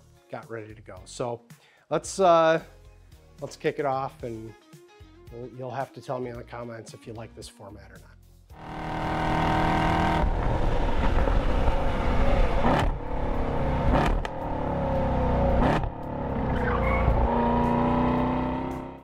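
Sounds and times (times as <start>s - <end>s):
racing car engine accelerating: 8.6s - 19.0s.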